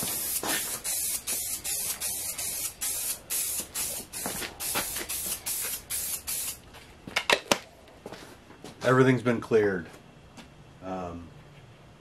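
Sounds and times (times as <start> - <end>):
aerosol spray can hissing: 0.0 - 6.6.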